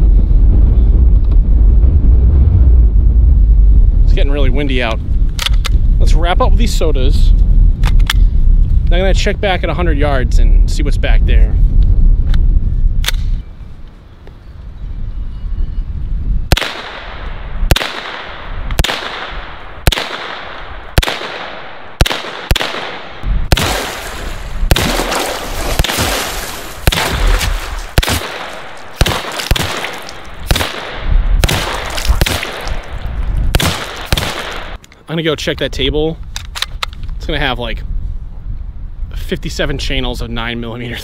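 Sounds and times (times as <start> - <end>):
rifle gunshots: 16.5 - 34.8.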